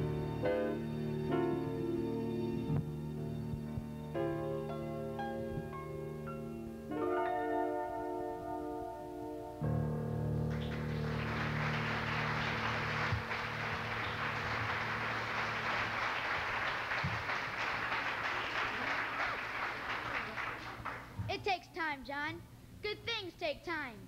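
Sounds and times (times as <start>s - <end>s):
audience applauding: 10.5s - 21.2s.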